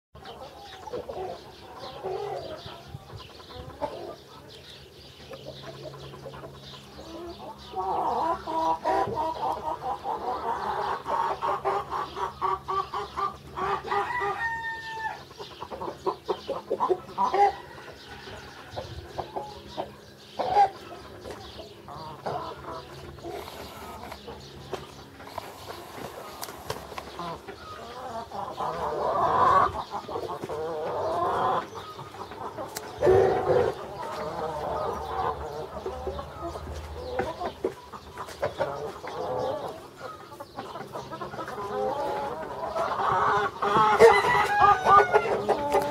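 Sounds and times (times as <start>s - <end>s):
chickens clucking and cackling: 0.2s - 45.9s
rooster crowing: 13.9s - 15.2s, 43.9s - 45.5s.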